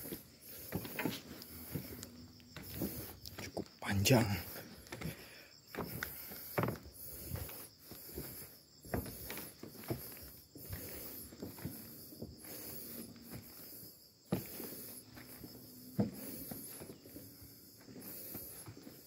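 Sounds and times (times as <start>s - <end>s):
footsteps on wooden planks: 0.0s - 19.0s.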